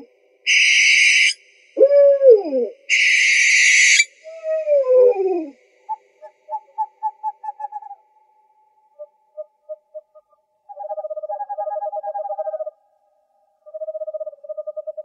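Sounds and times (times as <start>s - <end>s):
owl screeches and cries: 0.5s - 1.4s, 2.9s - 5.2s.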